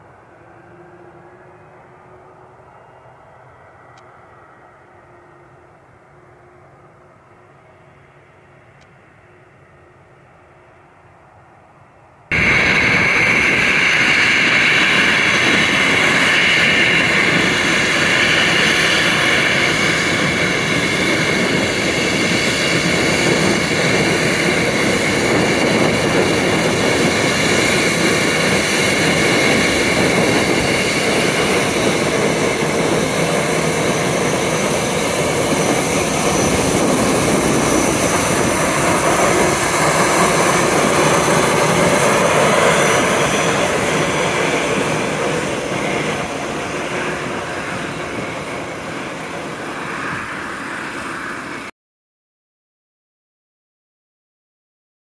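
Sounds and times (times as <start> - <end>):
jet engines whining: 12.3 - 51.7.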